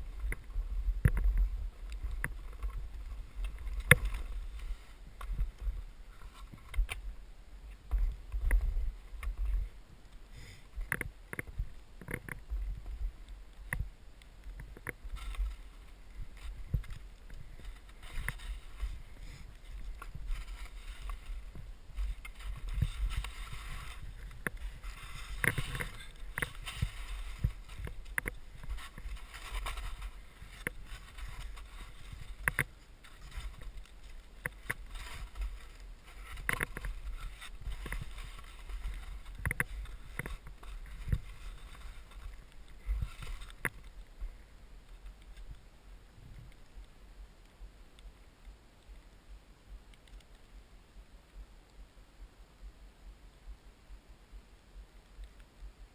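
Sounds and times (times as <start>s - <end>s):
skis swishing through snow: 0.0s - 6.6s, 15.1s - 44.1s.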